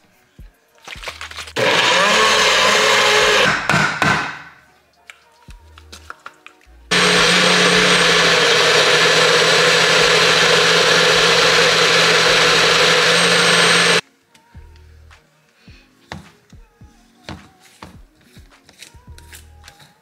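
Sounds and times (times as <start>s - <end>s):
blender running: 1.6s - 3.6s, 6.9s - 14.0s.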